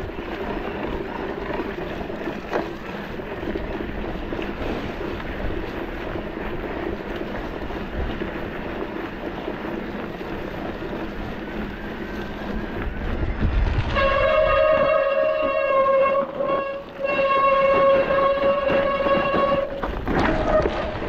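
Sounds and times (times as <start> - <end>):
wind and riding noise: 0.0 - 21.0
loud train horn: 13.9 - 21.0.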